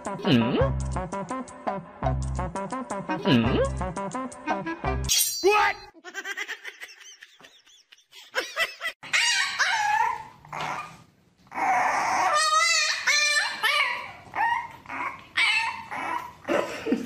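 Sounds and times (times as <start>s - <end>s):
puppy whining and yipping: 9.0s - 16.5s.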